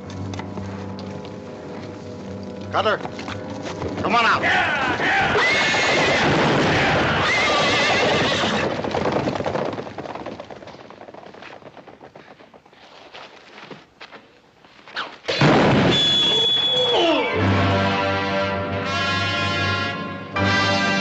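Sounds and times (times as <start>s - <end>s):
hoofbeats: 0.0s - 14.2s
horses neighing and whinnying: 4.4s - 10.0s
loud blast: 15.3s - 18.2s.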